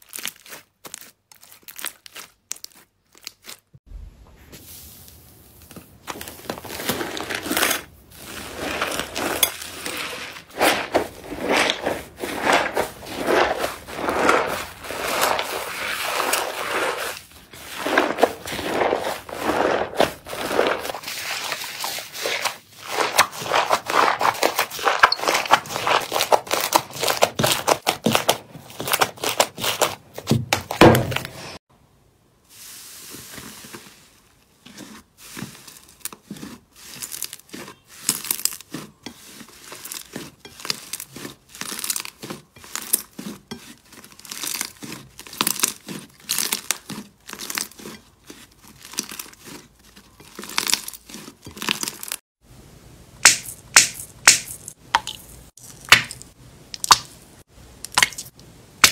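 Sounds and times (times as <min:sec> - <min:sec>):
slime crackling and popping: 0:39.6 - 0:47.9, 0:53.2 - 0:57.1.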